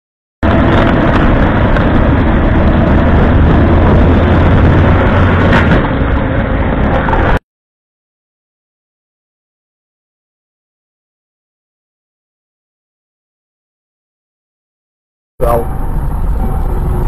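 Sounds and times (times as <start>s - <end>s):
vehicle and road rumble: 0.4s - 7.4s, 15.4s - 17.0s.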